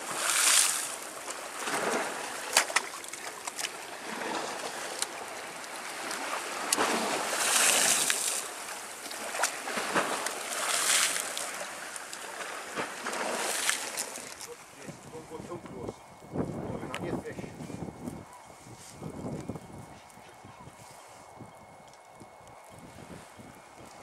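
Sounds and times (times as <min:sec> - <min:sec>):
waves breaking on shore: 0:00.0 - 0:15.6.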